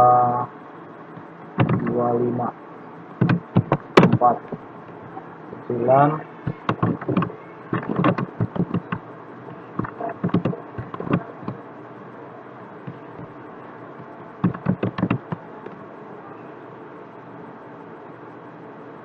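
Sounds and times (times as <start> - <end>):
steady background hiss: 0.0 - 19.0
keyboard taps and mouse clicks: 1.6 - 1.9, 3.1 - 4.6, 6.5 - 11.6, 12.8 - 13.3, 14.0 - 15.8.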